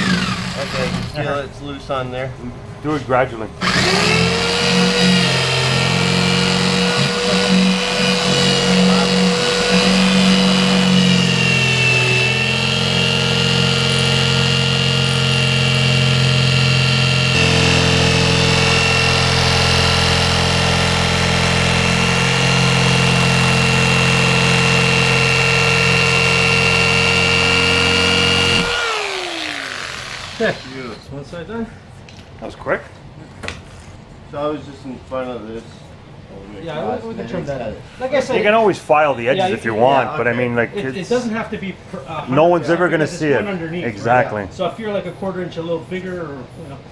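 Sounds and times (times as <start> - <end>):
jigsaw cutting plastic: 0.0 - 1.2, 3.6 - 31.0.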